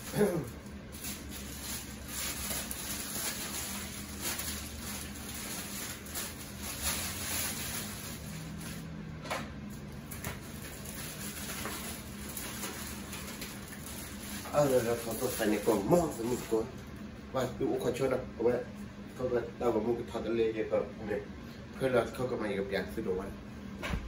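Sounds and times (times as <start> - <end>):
plastic bag rustling: 0.0 - 8.9, 9.9 - 16.7.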